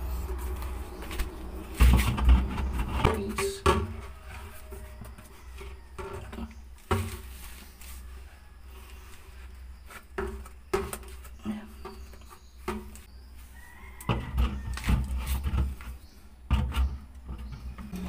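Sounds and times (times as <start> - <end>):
pipe knocking and rubbing: 1.6 - 7.5, 14.0 - 18.0.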